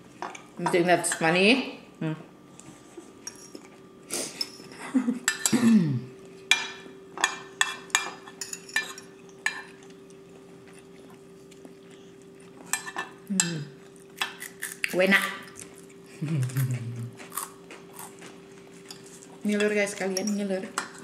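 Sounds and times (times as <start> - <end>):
cutlery clinking on ceramic bowls: 3.2 - 3.7, 4.4 - 5.7, 6.4 - 9.9, 12.7 - 13.6.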